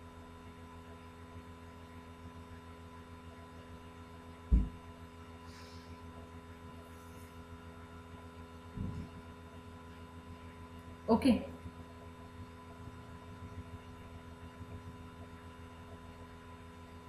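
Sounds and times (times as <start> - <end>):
low electrical hum: 0.0 - 17.0
dull thump: 4.5 - 4.8.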